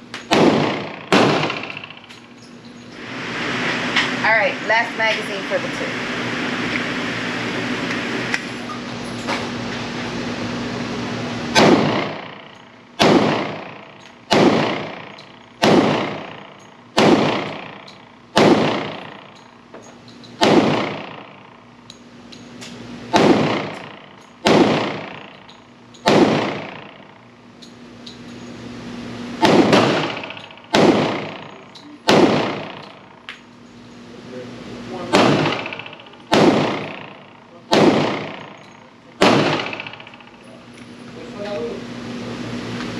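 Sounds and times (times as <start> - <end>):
pistol shots echoing indoors: 0.2 - 2.2, 11.5 - 19.6, 20.3 - 21.8, 23.1 - 27.2, 29.4 - 33.3, 35.0 - 40.4.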